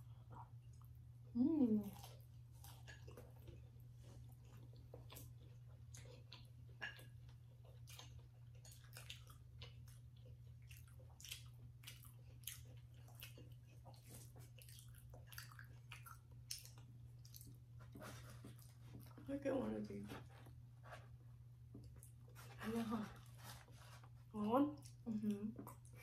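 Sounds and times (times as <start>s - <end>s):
people chewing: 1.6s - 19.2s.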